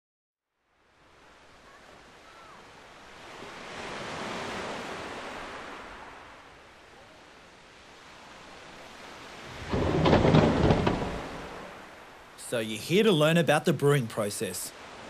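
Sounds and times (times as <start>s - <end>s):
ocean wave washing in: 0.9s - 12.4s.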